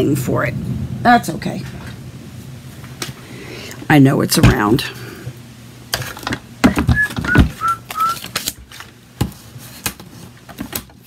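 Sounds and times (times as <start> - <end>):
whistled notes: 6.8 - 8.2.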